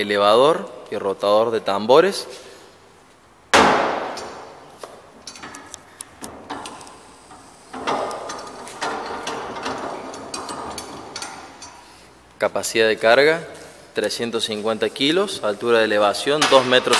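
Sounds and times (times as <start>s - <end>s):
metal clicking and rattling: 5.2s - 12.0s, 16.2s - 16.9s.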